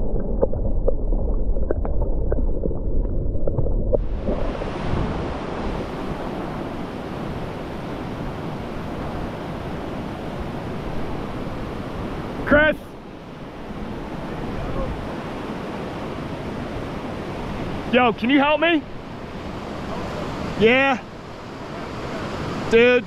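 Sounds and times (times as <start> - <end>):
underwater clicks and ticks: 0.0 - 4.4
muffled underwater rush: 0.0 - 22.7
whitewater rapids rushing: 4.2 - 23.0.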